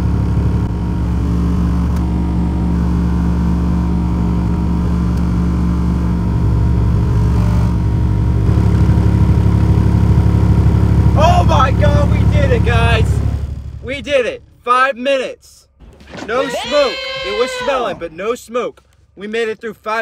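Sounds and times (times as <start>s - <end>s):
loud low bass tone: 0.0s - 14.7s.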